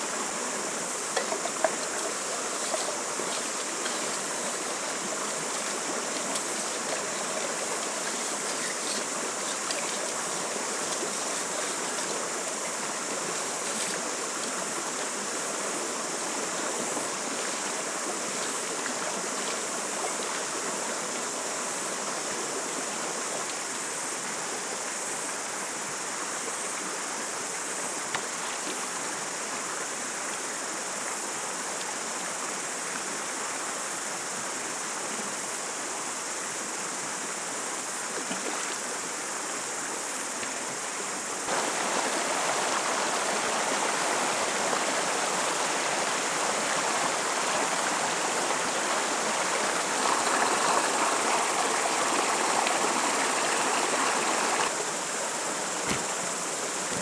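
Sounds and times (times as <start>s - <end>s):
stream running over stones: 0.0s - 57.0s.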